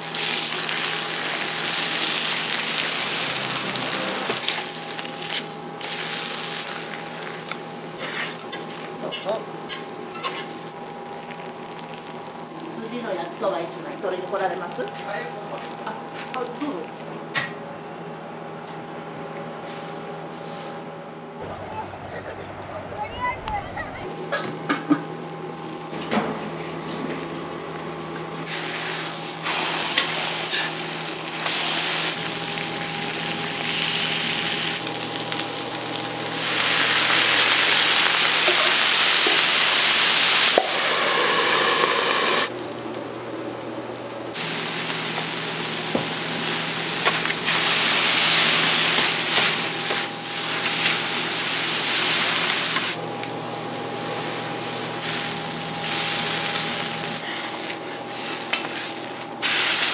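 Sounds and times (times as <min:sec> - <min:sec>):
food sizzling on a griddle: 0:00.0 - 0:09.0, 0:28.5 - 0:43.6, 0:44.3 - 0:53.0, 0:53.8 - 0:59.9.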